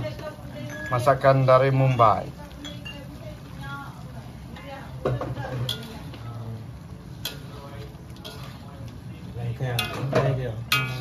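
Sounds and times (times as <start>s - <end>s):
food sizzling: 0.0s - 11.0s
spatula striking wok: 5.0s - 6.4s, 7.2s - 8.7s, 9.6s - 11.0s
metal spatula scraping a wok: 5.3s - 6.4s, 7.1s - 11.0s.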